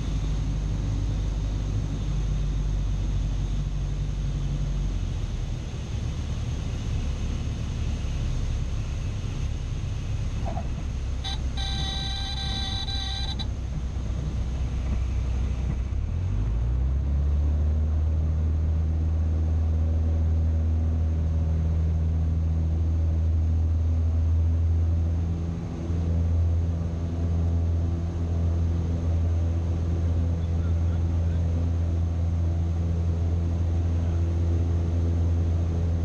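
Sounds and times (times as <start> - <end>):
propeller plane engine: 0.0 - 36.0.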